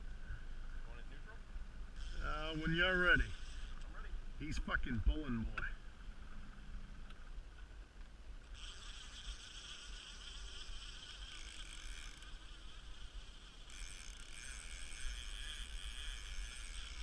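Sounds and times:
fishing reel buzzing: 1.8s - 4.4s, 8.4s - 17.0s.

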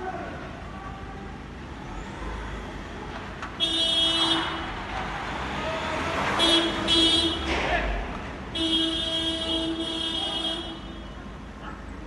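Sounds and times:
street hum: 0.0s - 12.0s
vehicle horn blasts: 8.6s - 11.2s.

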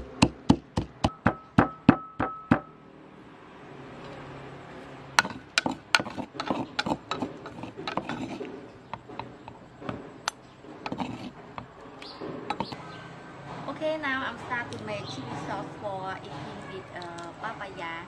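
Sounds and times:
metal spoon scraping wooden mortar: 5.2s - 12.8s.

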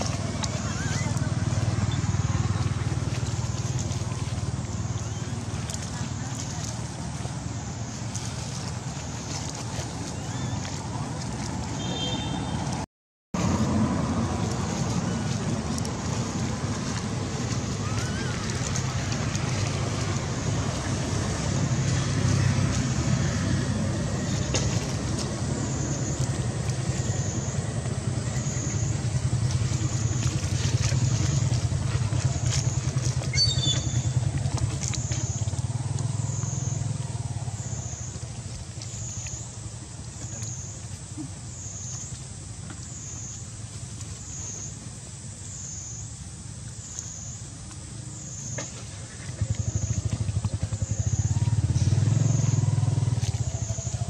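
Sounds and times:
steady low rumble: 13.4s - 45.3s, 47.4s - 54.0s.

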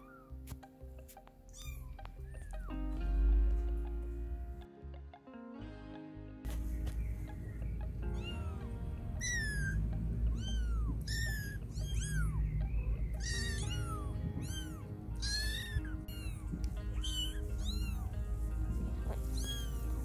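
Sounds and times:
kittens meowing: 0.0s - 0.5s, 1.4s - 3.4s, 7.8s - 20.0s
background music: 0.0s - 20.0s.

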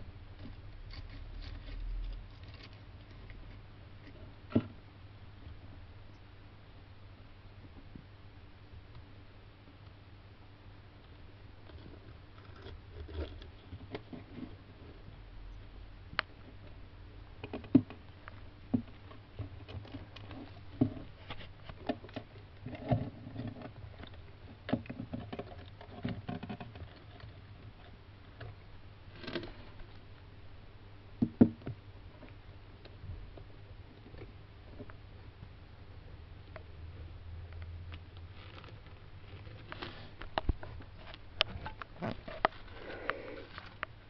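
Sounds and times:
tortoise claws scraping and tapping: 11.6s - 15.1s, 17.4s - 30.0s, 37.5s - 44.0s.

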